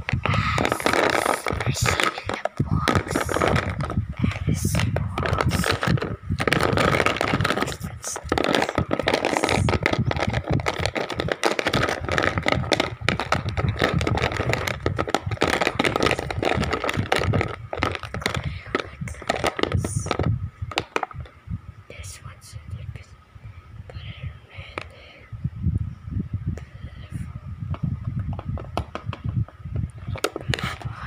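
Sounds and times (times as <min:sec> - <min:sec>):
wax crayons clattering in plastic case: 0:00.0 - 0:21.1.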